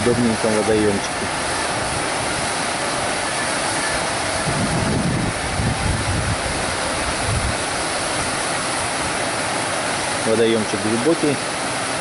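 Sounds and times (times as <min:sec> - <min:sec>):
deep water rumble: 0:00.0 - 0:09.3
waterfall rushing: 0:00.0 - 0:12.0.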